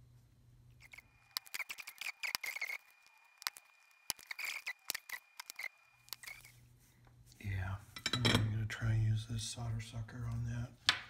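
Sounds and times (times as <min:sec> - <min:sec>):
soldering tools clicking and scraping: 0:00.8 - 0:06.5.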